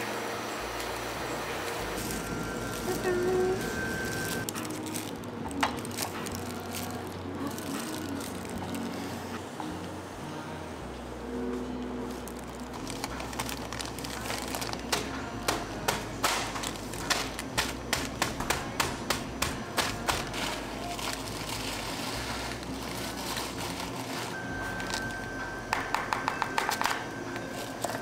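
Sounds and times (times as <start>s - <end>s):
plastic rustling: 1.8s - 9.2s, 12.1s - 18.9s, 19.6s - 25.3s
wafer cones crunching in bag: 1.9s - 9.1s, 12.2s - 15.2s, 19.9s - 25.2s.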